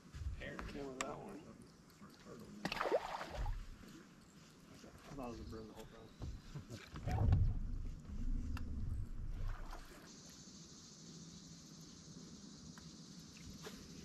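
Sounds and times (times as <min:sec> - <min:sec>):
faint low hum: 0:00.0 - 0:14.0
low rumble: 0:07.0 - 0:09.8
insects buzzing: 0:07.6 - 0:14.0.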